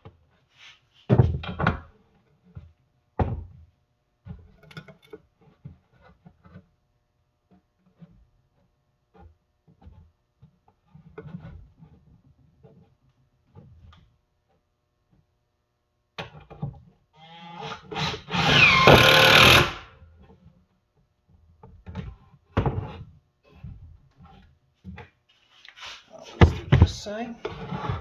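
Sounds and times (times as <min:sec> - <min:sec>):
cordless drill driving screw: 0:17.6 - 0:19.9.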